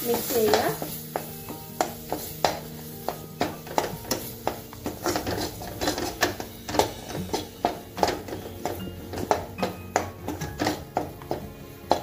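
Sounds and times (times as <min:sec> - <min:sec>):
metal spatula scraping steel pan: 0:03.4 - 0:12.0.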